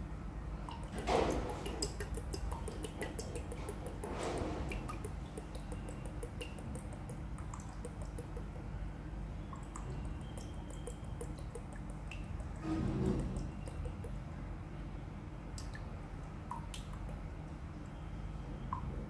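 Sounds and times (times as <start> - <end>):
liquid dripping into metal pitcher: 0.6 - 8.8, 9.4 - 14.2, 16.5 - 17.3.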